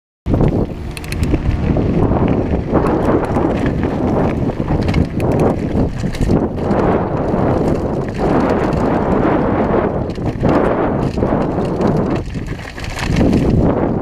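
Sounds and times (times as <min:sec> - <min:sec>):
bike rattling: 0:00.3 - 0:14.0
tyres crunching on gravel: 0:00.3 - 0:14.0
sharp clicks and knocks: 0:00.4 - 0:01.4, 0:02.8 - 0:06.4.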